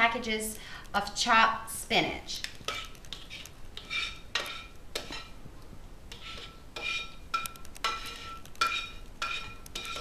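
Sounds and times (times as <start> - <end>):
tongs scraping a frying pan: 2.6 - 5.4, 6.1 - 10.0.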